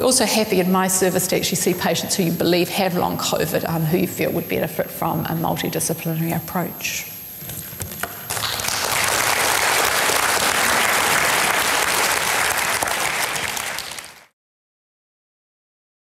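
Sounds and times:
audience applauding: 0:08.3 - 0:14.3.

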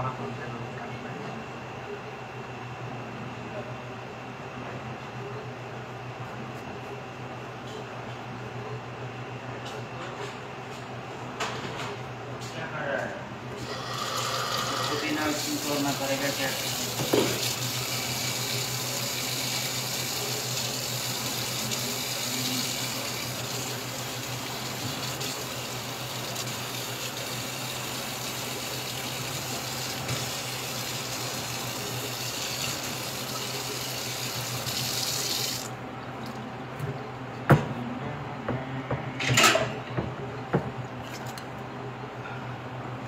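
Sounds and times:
faucet running into steel sink: 0:13.6 - 0:35.7.

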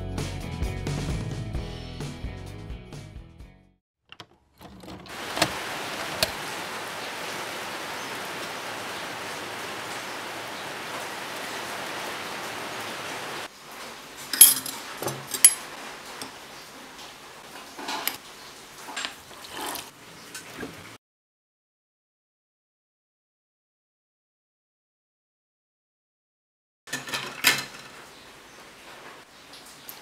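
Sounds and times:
metal spoon clinking on mug: 0:14.4 - 0:15.6.

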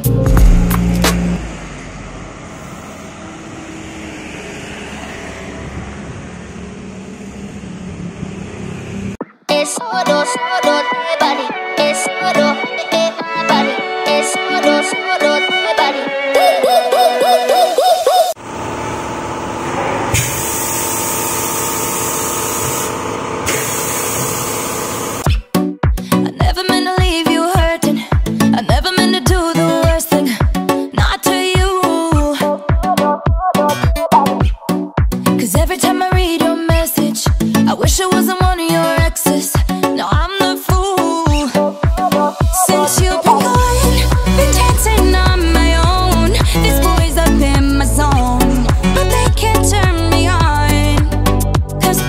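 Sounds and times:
background music: 0:00.0 - 0:01.5, 0:09.2 - 0:17.8, 0:25.3 - 0:52.0
low motor hum: 0:00.0 - 0:09.2, 0:18.4 - 0:25.2
road traffic: 0:00.0 - 0:09.2, 0:18.3 - 0:25.3.

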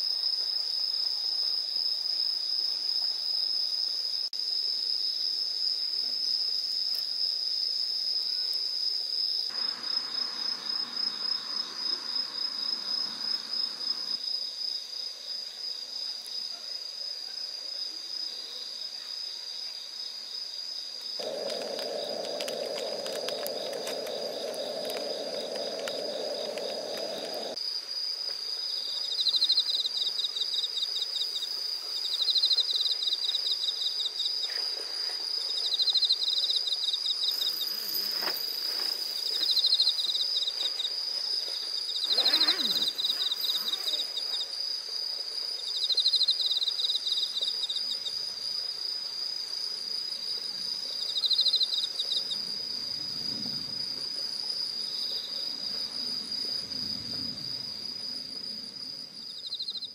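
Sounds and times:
insects trilling: 0:00.0 - 0:16.6, 0:18.1 - 0:59.9
pulsed insect chirp: 0:09.3 - 0:14.4, 0:21.1 - 0:27.7, 0:41.9 - 0:44.6, 0:50.1 - 0:53.8, 0:54.5 - 0:59.9.

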